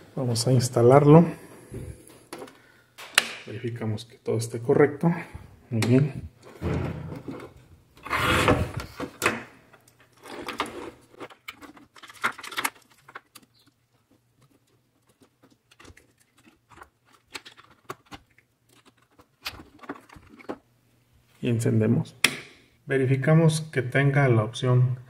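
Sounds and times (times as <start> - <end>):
rustling of handled electronics: 6.3 - 20.7.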